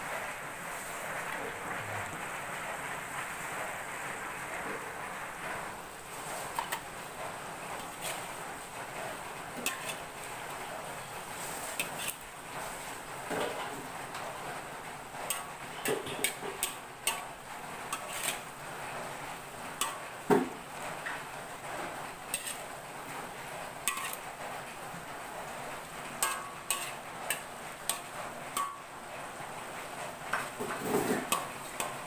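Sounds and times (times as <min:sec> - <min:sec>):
metal spatula clinking on wok: 0:23.8 - 0:24.2, 0:26.2 - 0:28.9.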